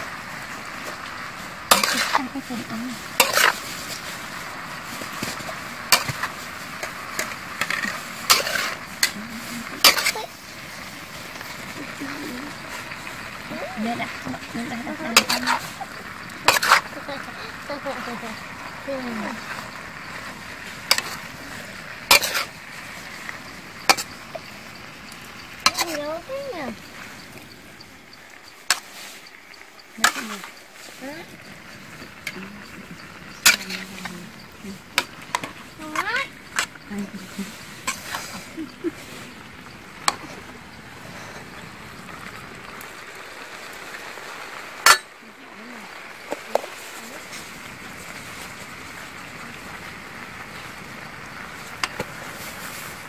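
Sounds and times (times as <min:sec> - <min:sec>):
food sizzling: 0:00.0 - 0:53.0
steady low hiss: 0:00.0 - 0:53.0
metal spatula scraping a wok: 0:00.2 - 0:11.8, 0:12.4 - 0:26.3, 0:28.6 - 0:31.0, 0:31.7 - 0:39.3
metal spatula clanking in wok: 0:01.7 - 0:02.3, 0:03.2 - 0:03.6, 0:05.3 - 0:10.3, 0:16.5 - 0:16.9, 0:22.1 - 0:22.5, 0:44.8 - 0:45.1.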